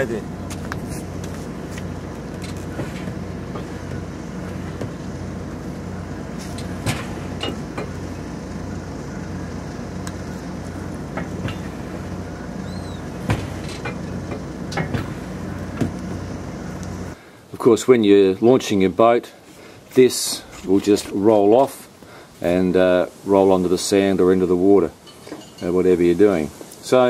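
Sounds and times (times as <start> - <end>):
vehicle engine humming: 0.0 - 17.2.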